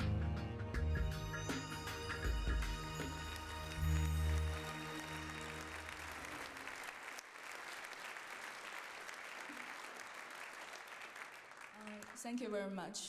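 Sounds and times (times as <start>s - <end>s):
audience applauding: 2.4s - 12.8s.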